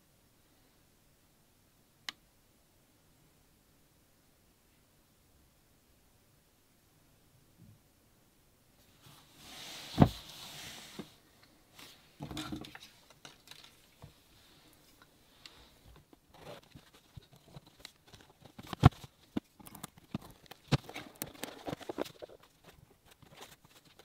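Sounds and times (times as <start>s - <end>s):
packaging rustling: 16.3s - 24.0s.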